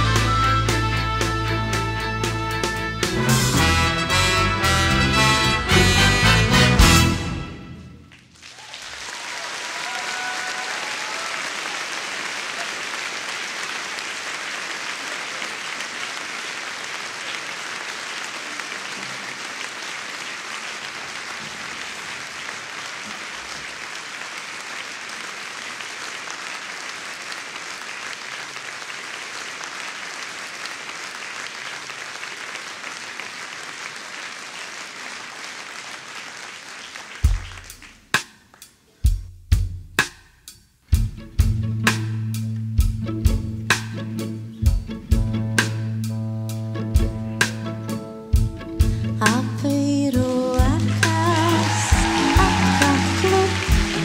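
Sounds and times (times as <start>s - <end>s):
audience applauding: 3.1s - 38.7s, 50.3s - 54.0s.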